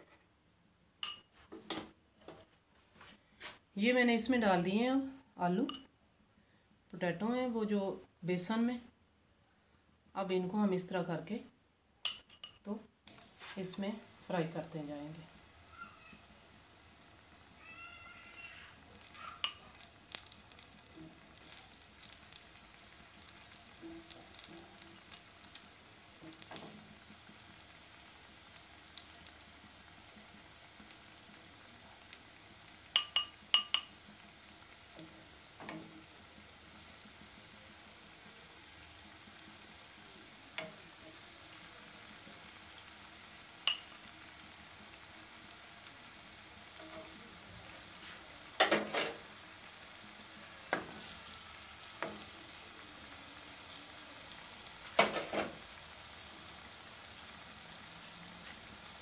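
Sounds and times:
food sizzling in hot oil: 13.1s - 59.0s.

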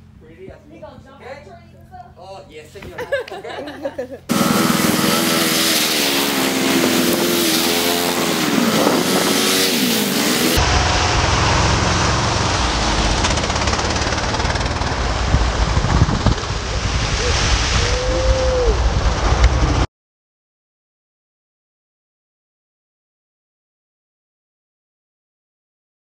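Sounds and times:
quad bike engines revving: 3.3s - 17.3s
water splashing: 4.3s - 18.3s.

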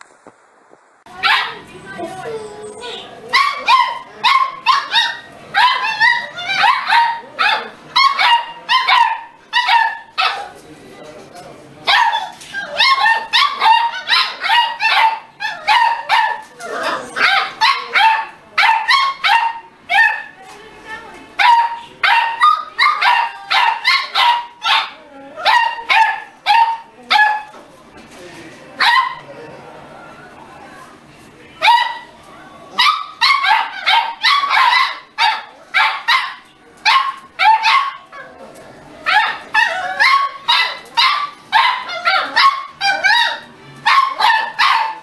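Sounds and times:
puppies barking and yipping: 1.1s - 10.6s, 11.9s - 20.4s, 21.4s - 27.5s, 32.8s - 38.4s, 39.0s - 45.0s.

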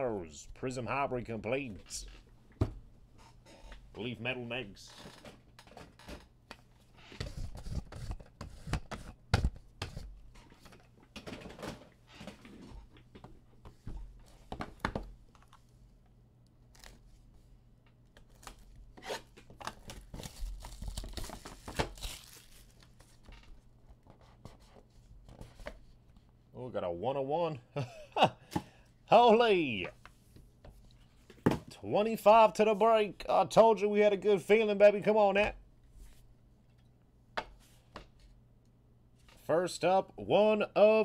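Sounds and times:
plastic wrapping tearing and crinkling: 18.2s - 23.2s.

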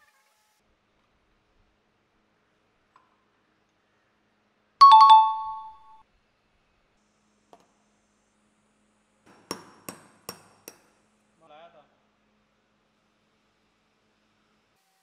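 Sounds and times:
bright ringing ding: 4.8s - 6.0s.

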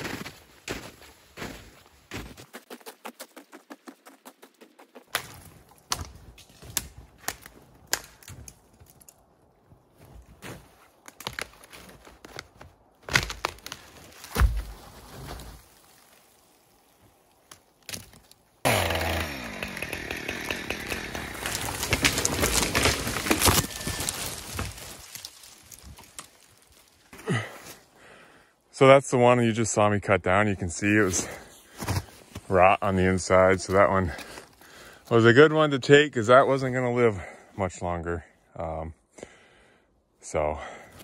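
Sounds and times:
knocks and crunches: 0.0s - 16.1s, 21.0s - 27.4s
chainsaw cutting into tree trunk: 18.6s - 24.7s.

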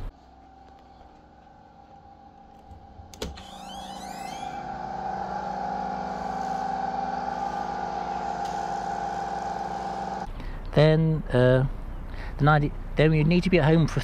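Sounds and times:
machine humming: 0.0s - 10.6s.

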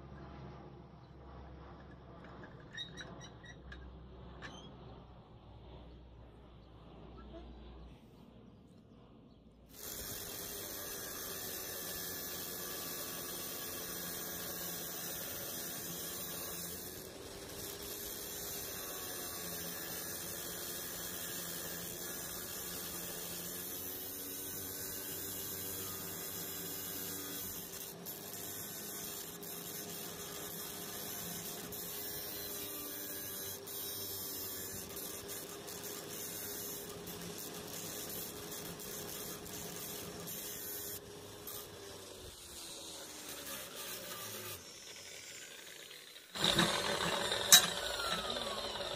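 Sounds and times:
arc welding sizzling hiss: 9.7s - 48.9s.

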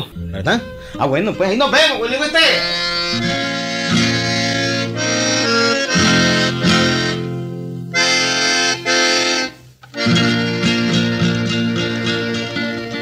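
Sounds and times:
accordion playing held chords: 0.0s - 13.0s.

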